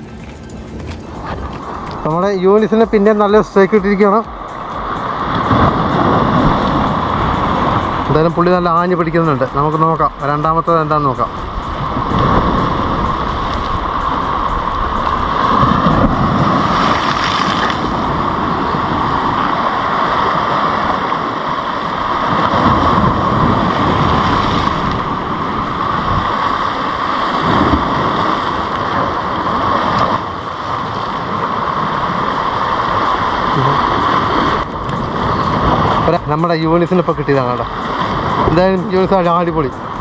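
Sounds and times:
sea waves: 0:00.0 - 0:40.0
wind noise on microphone: 0:00.0 - 0:40.0.

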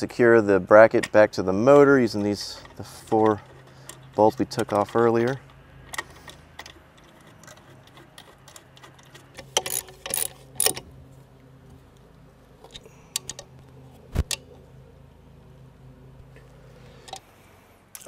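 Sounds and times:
metal clicks and knocks: 0:00.9 - 0:10.9, 0:12.6 - 0:14.6
socket ratchet clicking: 0:05.3 - 0:10.9.

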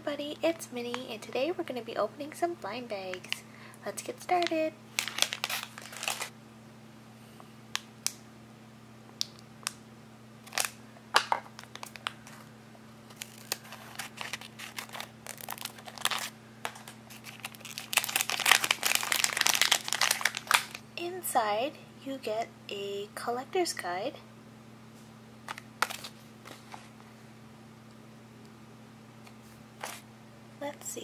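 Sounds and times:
foil packet crinkling: 0:04.0 - 0:06.3, 0:10.4 - 0:12.5, 0:13.1 - 0:20.8, 0:25.5 - 0:26.9.

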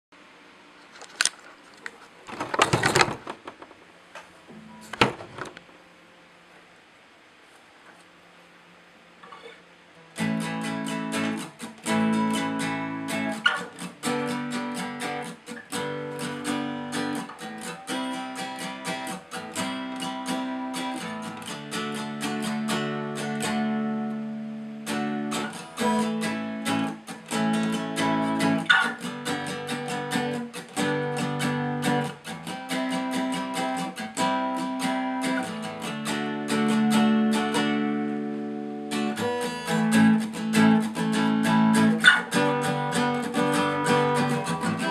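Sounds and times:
guitar strumming chords: 0:09.3 - 0:44.9.

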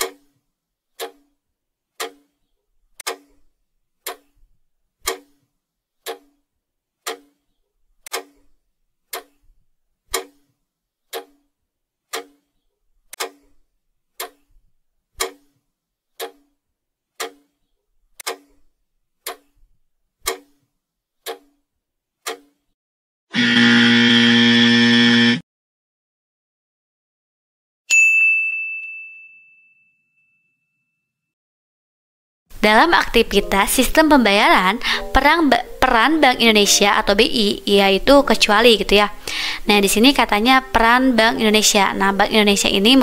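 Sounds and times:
clock ticking: 0:04.0 - 0:04.3, 0:06.1 - 0:06.3, 0:07.0 - 0:07.3, 0:11.1 - 0:11.4, 0:12.1 - 0:12.4, 0:14.2 - 0:14.4, 0:15.2 - 0:15.5, 0:16.2 - 0:16.5, 0:17.2 - 0:17.4, 0:19.2 - 0:19.4.

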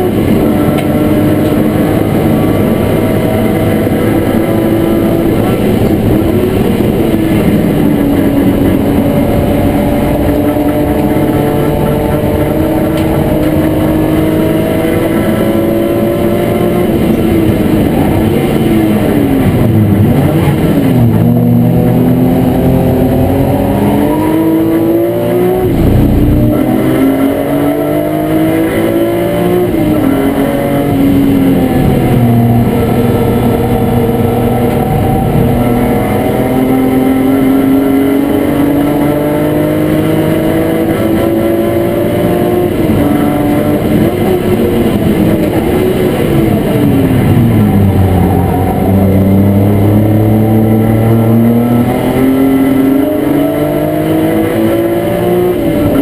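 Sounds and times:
race car engine at speed: 0:00.0 - 0:56.0.

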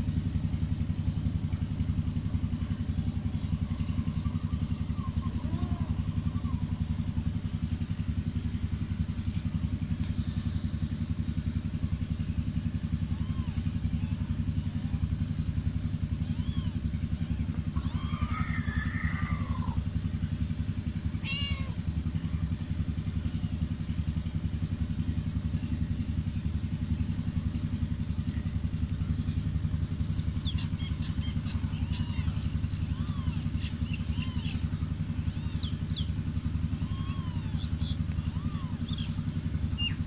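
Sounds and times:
kittens mewing: 0:02.8 - 0:11.3, 0:12.8 - 0:20.1, 0:20.7 - 0:22.5, 0:30.4 - 0:40.0.

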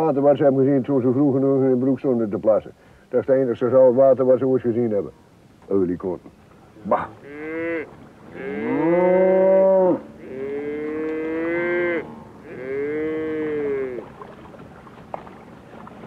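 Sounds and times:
cattle mooing: 0:06.8 - 0:14.1.

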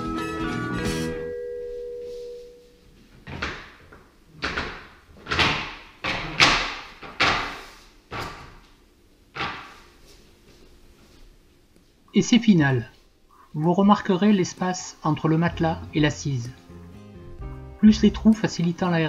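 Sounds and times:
music: 0:00.0 - 0:01.5, 0:14.4 - 0:19.0
wooden slats clacking on tiled floor: 0:03.3 - 0:08.6, 0:09.4 - 0:09.8.

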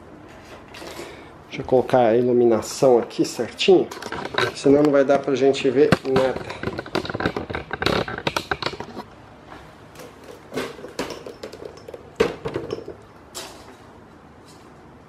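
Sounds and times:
light clicks and knocks: 0:05.8 - 0:09.0.

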